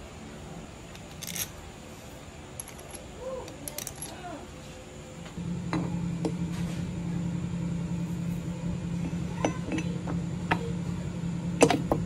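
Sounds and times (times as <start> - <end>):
steady low hum: 0.0 - 12.0
metal parts clinking: 0.9 - 1.6, 2.5 - 4.3.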